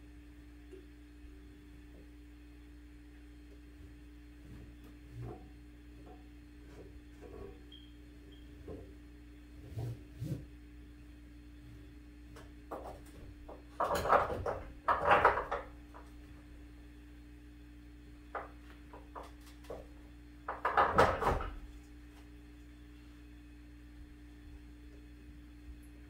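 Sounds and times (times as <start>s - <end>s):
steady low hum: 0.0s - 26.0s
clattering and knocking in engine bay: 12.7s - 16.1s, 20.5s - 21.7s.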